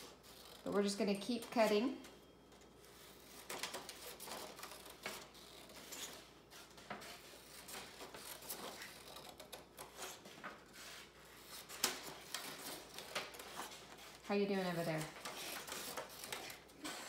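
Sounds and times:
paper rustling: 2.6s - 16.8s
scissors snipping paper: 6.9s - 10.2s, 11.4s - 14.2s, 14.8s - 16.7s.

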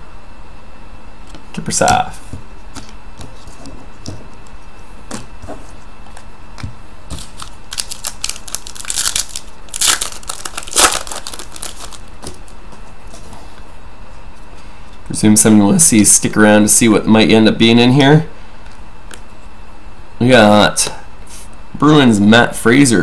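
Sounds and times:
card pack wrapper crinkling: 7.1s - 12.6s.

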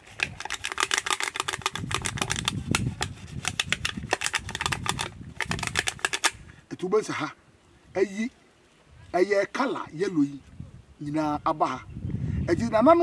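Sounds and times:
leaf scratching on object: 0.0s - 6.3s.

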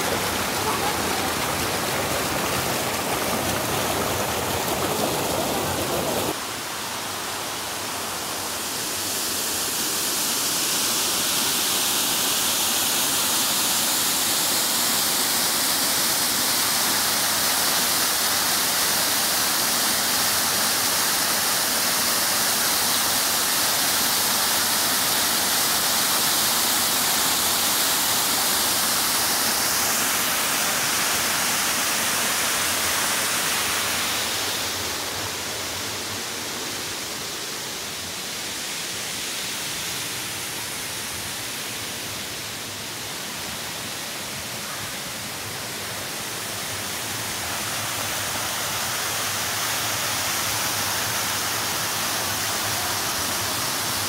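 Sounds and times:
waterfall splashing into pool: 0.0s - 6.4s, 42.4s - 54.0s
stream rushing over rocks: 0.0s - 54.0s.

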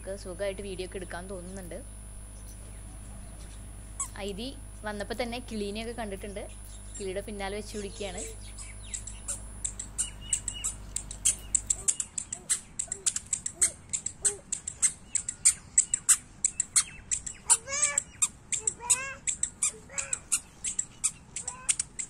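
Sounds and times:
small birds chirping: 0.2s - 22.0s
harsh bird calls: 6.2s - 22.0s.

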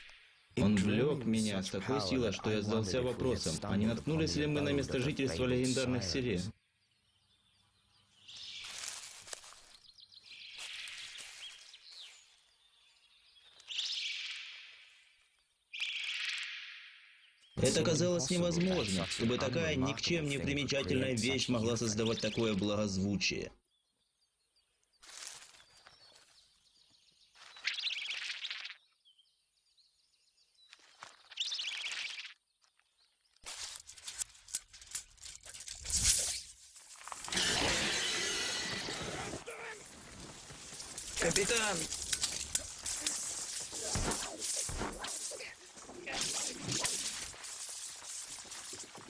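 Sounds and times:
small bird trilling: 27.5s - 28.8s, 31.2s - 32.4s.

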